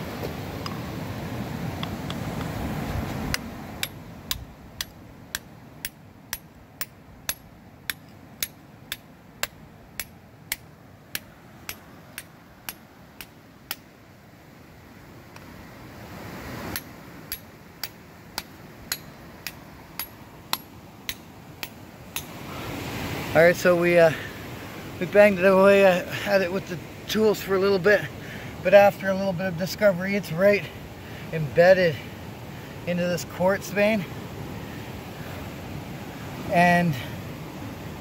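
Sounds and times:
hammer striking steel chisel on rock: 3.3s - 13.9s, 16.7s - 22.4s.

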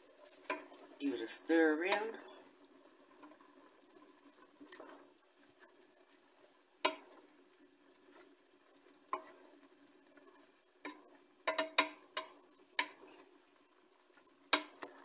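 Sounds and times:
faint frying sizzle: 0.0s - 15.0s
wooden spoon knocking metal pot: 6.8s - 7.1s, 10.8s - 13.0s, 14.5s - 14.9s.

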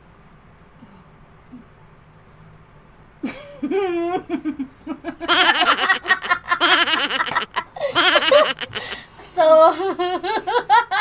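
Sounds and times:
loud rapid laughter: 5.0s - 9.0s.

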